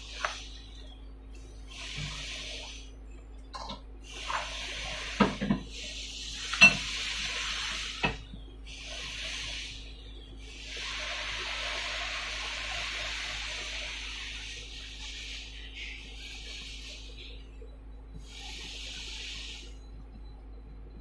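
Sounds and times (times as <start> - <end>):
steady low hum: 0.0 - 21.0
fried rice sizzling in a pan: 4.1 - 9.7, 10.6 - 15.4.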